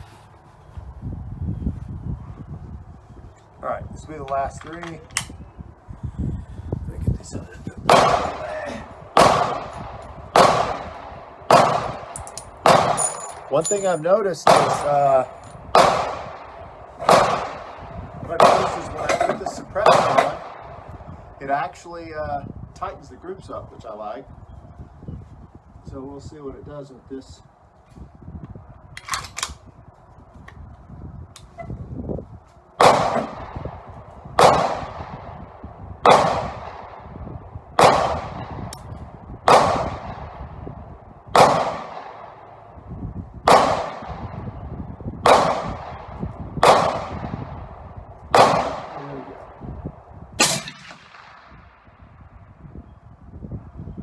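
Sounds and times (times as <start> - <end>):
gunshots with echo: 7.8 - 20.9, 32.8 - 33.8, 34.4 - 37.2, 37.8 - 38.7, 39.4 - 40.6, 41.3 - 42.5, 43.4 - 44.4, 45.2 - 47.6, 48.3 - 49.5, 50.4 - 51.9.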